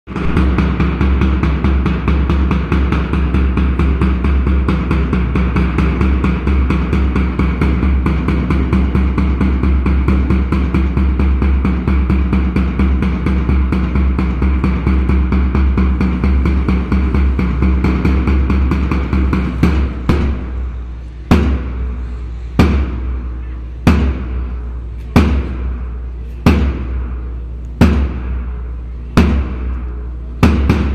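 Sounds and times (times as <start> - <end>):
fast even drumming: 0.1 - 20.6, 30.4 - 30.9
bass drum strikes ringing: 0.1 - 30.9
low steady hum: 0.1 - 30.9.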